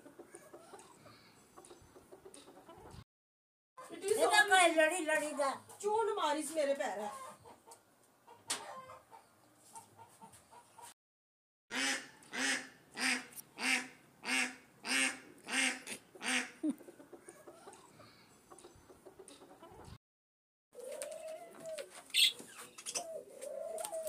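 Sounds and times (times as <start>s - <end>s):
duck quacking: 11.7s - 16.6s.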